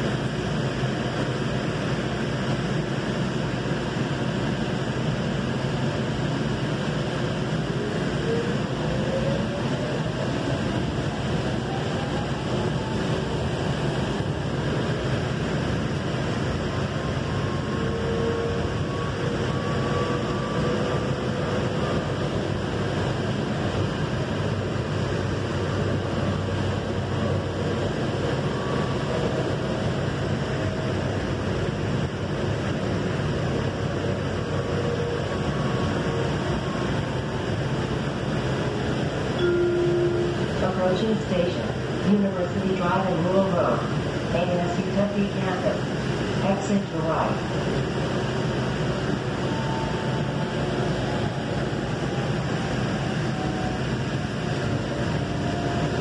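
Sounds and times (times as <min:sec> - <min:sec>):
light rail train running: 0:00.0 - 0:56.0
faint whining tones: 0:34.1 - 0:43.4.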